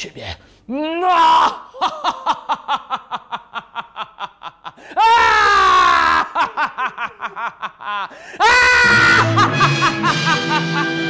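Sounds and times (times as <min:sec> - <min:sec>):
person laughing loudly: 0:01.6 - 0:11.0
long drawn-out cry: 0:04.8 - 0:06.7, 0:08.0 - 0:09.5.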